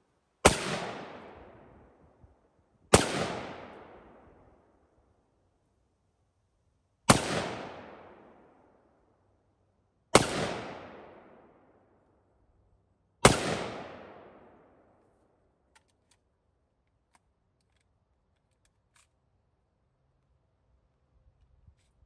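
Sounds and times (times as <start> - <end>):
rifle shots: 0.4 - 1.4, 2.9 - 4.0, 7.1 - 8.2, 10.1 - 11.3, 13.2 - 14.5
faint small clicks: 15.7 - 19.2.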